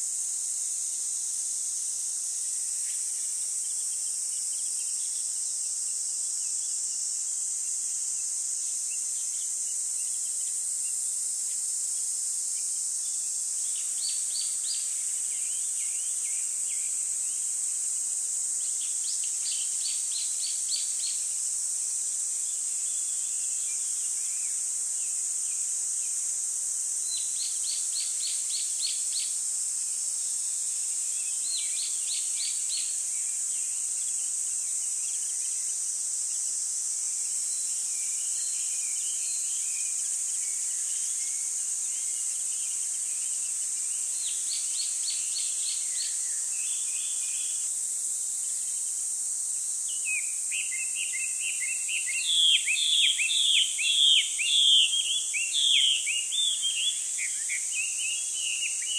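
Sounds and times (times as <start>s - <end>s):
high-pitched hiss: 0.0s - 58.9s
small birds chirping: 49.9s - 58.9s.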